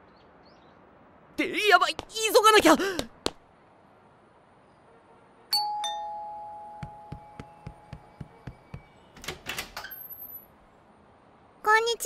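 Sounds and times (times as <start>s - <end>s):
two-tone doorbell chime: 5.5s - 8.0s.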